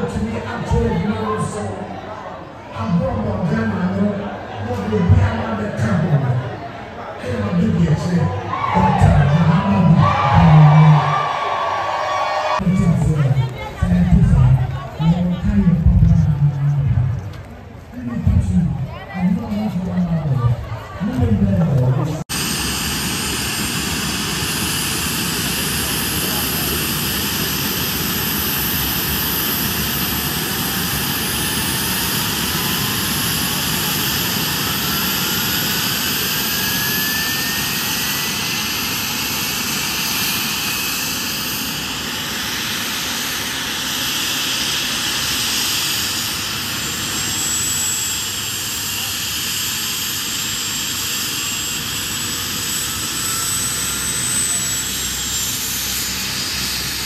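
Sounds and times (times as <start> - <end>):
helicopter engine and rotor noise: 0.0 - 57.0
thin rising whine: 18.2 - 57.0.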